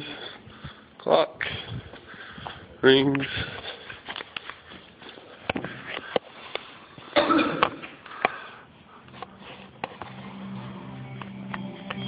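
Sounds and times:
faint music: 8.8 - 12.0.

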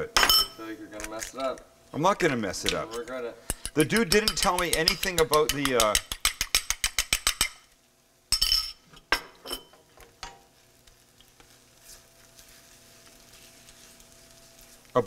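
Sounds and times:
utensil clinking against bowl: 2.9 - 7.6, 8.3 - 10.4.

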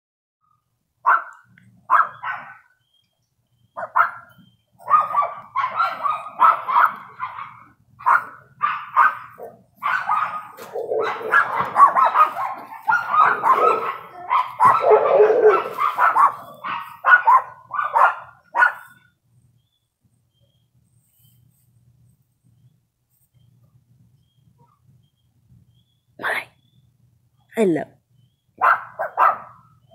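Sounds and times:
dog barking: 1.0 - 2.7, 3.8 - 19.0, 28.6 - 29.8.

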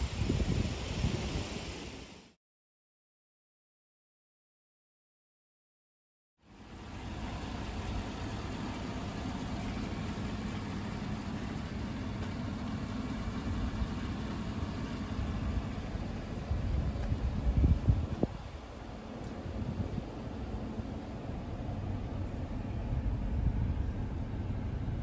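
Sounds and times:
pickup engine idling: 6.4 - 25.0.

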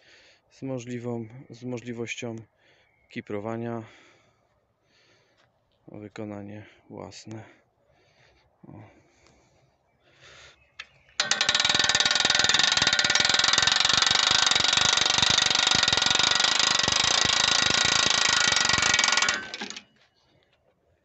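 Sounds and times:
winch ratchet clicking: 11.2 - 20.0.

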